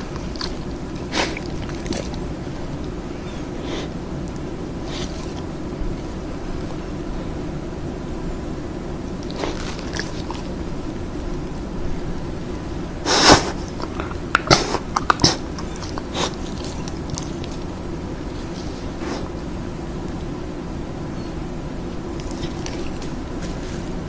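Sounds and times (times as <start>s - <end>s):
dog licking and lip-smacking: 0.0s - 3.0s, 9.2s - 10.6s, 13.5s - 19.4s, 22.1s - 23.2s
dog snuffling: 0.0s - 7.1s, 9.2s - 11.5s, 12.9s - 20.4s, 22.0s - 24.0s
low hum and hiss: 0.0s - 24.0s.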